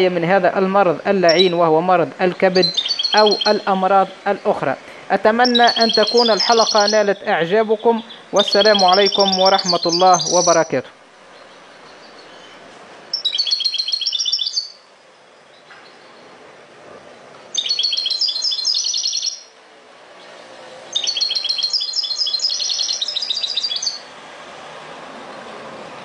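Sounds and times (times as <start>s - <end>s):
goldfinch singing high twittering: 1.0s - 4.6s, 5.2s - 14.8s, 17.5s - 19.5s, 20.9s - 24.1s.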